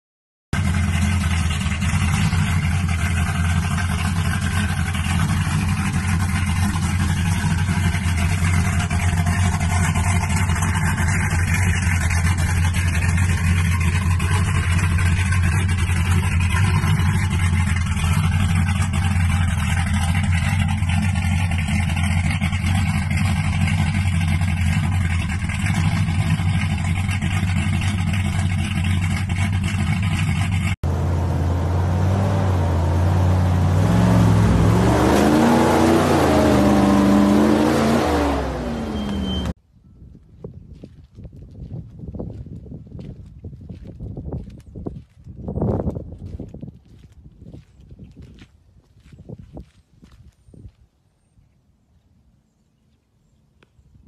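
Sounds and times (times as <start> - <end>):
pickup truck engine idling: 0.6 - 36.8.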